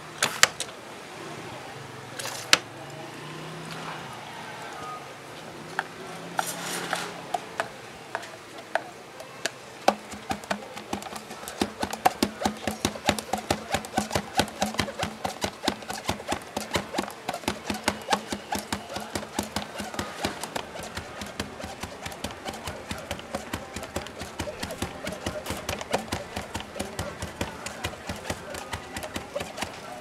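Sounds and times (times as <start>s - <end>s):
metal pestle pounding in plastic cup: 9.9s - 30.0s.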